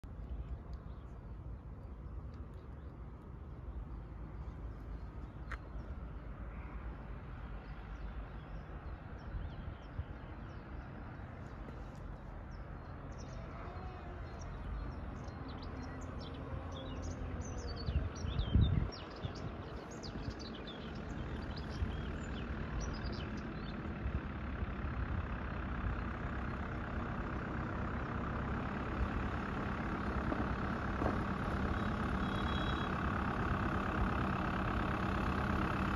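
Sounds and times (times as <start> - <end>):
birds chirping: 0.0 - 35.7
tractor engine: 19.4 - 35.9.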